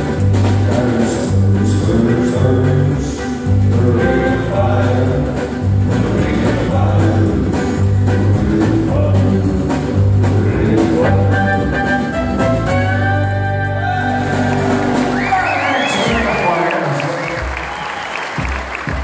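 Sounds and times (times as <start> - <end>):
pulsing bass line: 0.0 - 15.6
acoustic guitars: 0.0 - 16.9
person singing: 0.4 - 14.6.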